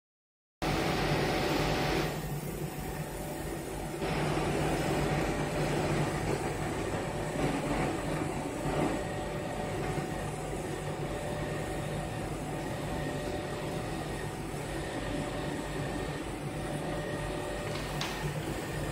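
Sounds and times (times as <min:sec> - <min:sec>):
laser cutting machine whirring: 0:00.6 - 0:18.9.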